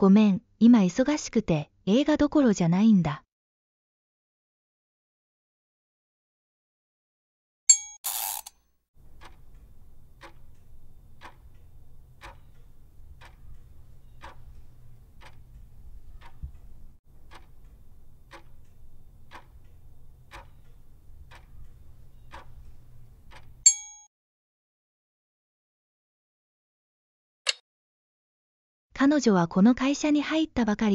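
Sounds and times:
clock ticking: 8.4s - 24.0s
low steady hum: 9.0s - 23.7s.

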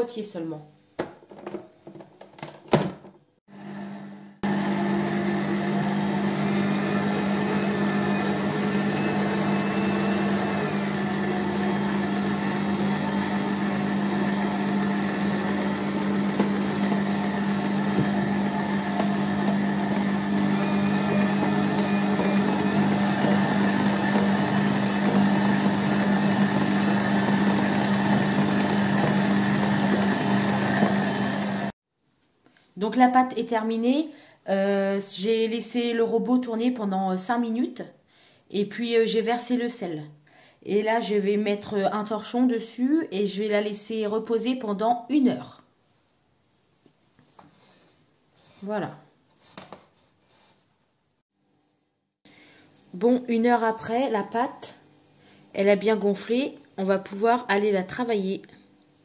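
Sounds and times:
stand mixer motor humming: 3.6s - 31.7s.

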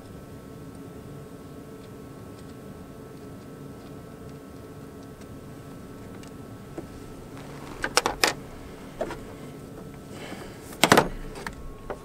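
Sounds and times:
faint steady hum: 0.0s - 12.0s
clicks and knocks of hardware: 6.8s - 8.4s.

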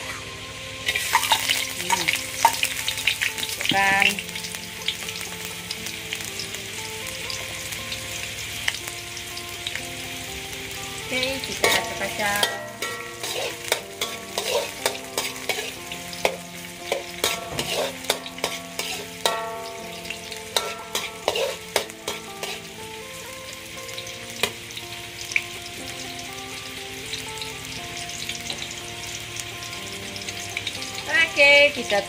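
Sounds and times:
food sizzling in hot oil: 0.0s - 32.0s
metal spatula scraping wok: 11.2s - 22.9s.

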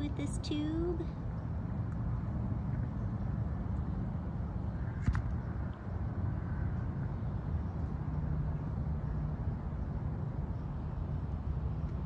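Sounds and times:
low outdoor rumble: 0.0s - 12.0s.

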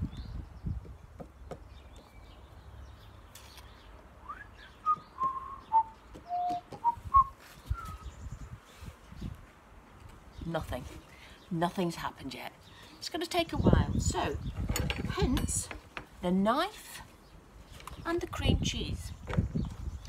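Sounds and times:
woman whistling a slow tune: 4.2s - 8.1s.

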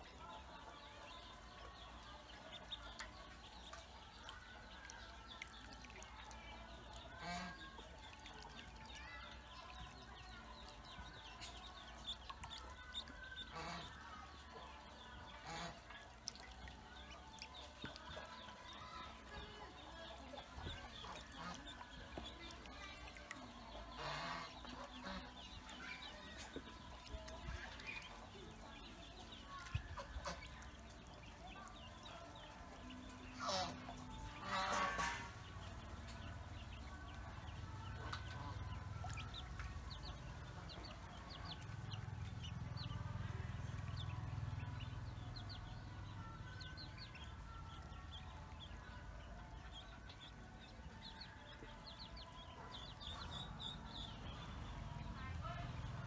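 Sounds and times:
ducklings peeping: 0.0s - 56.0s
fowl calls: 13.5s - 14.2s, 33.4s - 35.4s.

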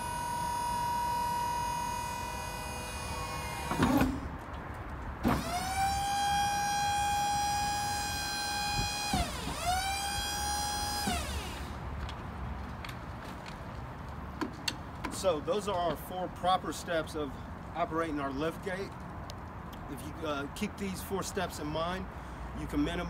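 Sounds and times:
hydraulic pump motor whining: 0.0s - 4.3s, 5.2s - 11.8s
liftgate clunk: 3.1s - 4.3s, 5.2s - 5.7s.

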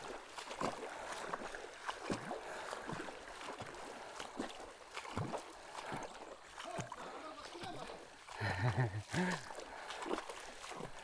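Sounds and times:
river running over stones: 0.0s - 11.0s
small water splashes: 0.0s - 11.0s.

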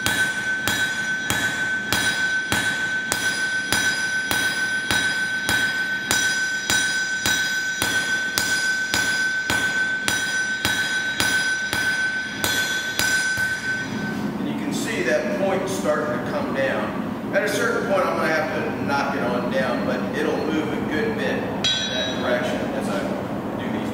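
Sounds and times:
hammer striking steel on anvil: 0.0s - 15.1s, 21.6s - 23.2s
anvil ringing: 0.0s - 15.3s, 21.6s - 23.2s.

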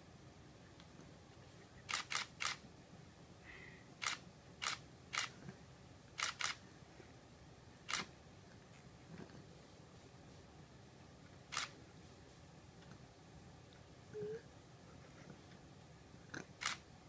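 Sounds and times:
camera shutter clicking: 1.9s - 2.6s, 4.0s - 5.3s, 6.2s - 6.6s, 11.5s - 11.7s, 16.6s - 16.8s.

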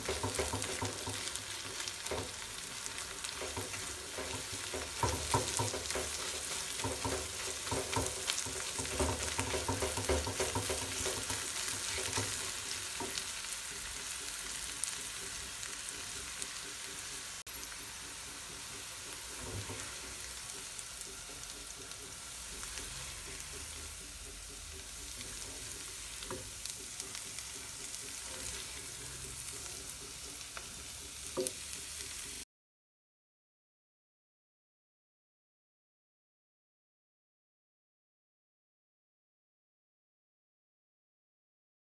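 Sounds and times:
egg sizzling in frying pan: 0.0s - 32.4s
spatula scraping pan: 0.0s - 32.4s.

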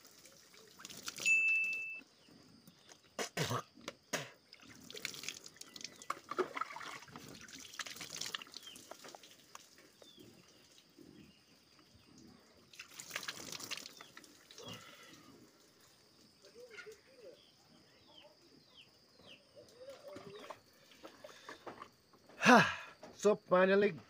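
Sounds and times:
water splashing: 0.0s - 1.8s, 4.5s - 9.8s, 12.7s - 15.0s
water dripping: 0.0s - 2.0s, 4.5s - 11.0s, 12.2s - 17.0s
man spitting water: 3.2s - 5.5s.

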